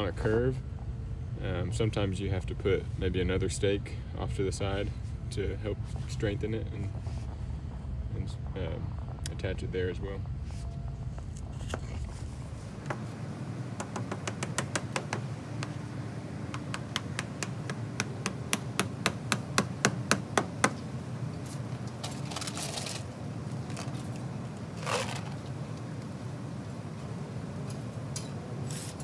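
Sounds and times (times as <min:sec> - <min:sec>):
sharp tool knocks: 0:13.8 - 0:15.8, 0:16.5 - 0:20.8
scraping rustles: 0:21.4 - 0:25.5.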